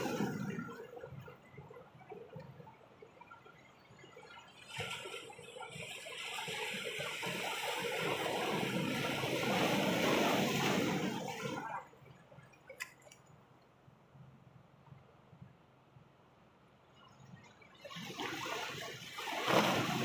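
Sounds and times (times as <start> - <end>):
sea water washing among boulders: 0.0 - 1.4, 4.6 - 11.9, 17.8 - 20.0.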